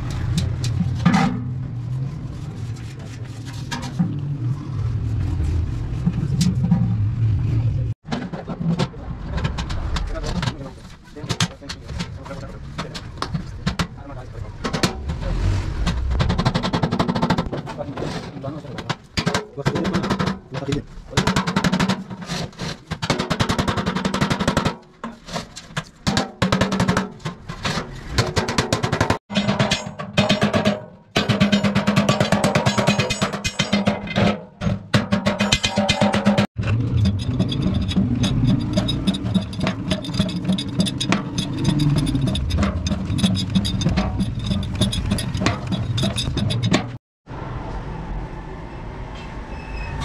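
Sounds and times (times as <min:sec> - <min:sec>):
metal shell rattling and clicking: 0:18.5 - 0:47.0
rapid hammer strikes on metal tank: 0:23.0 - 0:24.8, 0:26.1 - 0:27.2, 0:28.3 - 0:36.5.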